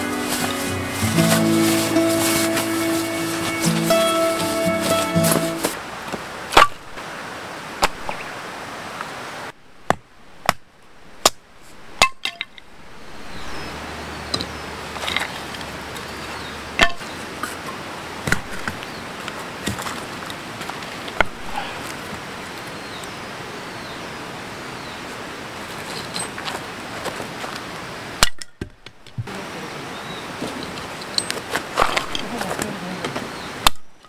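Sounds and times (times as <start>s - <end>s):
hatchet chopping wood: 9.9s - 11.4s, 31.8s - 32.2s.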